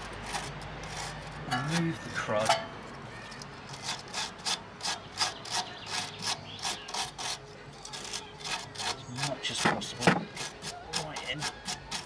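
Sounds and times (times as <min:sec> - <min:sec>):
wire brush scraping rusty steel: 0:00.0 - 0:12.0.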